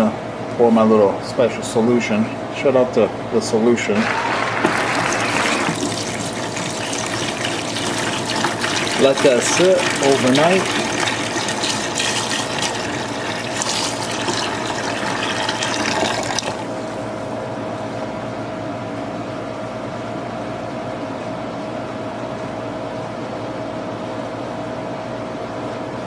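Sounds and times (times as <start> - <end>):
liquid pouring and splashing: 4.0 - 17.2.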